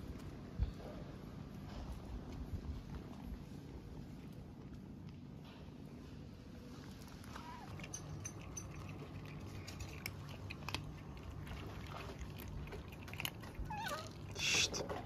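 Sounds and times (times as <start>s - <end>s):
kittens crunching dry kibble: 0.0s - 15.0s.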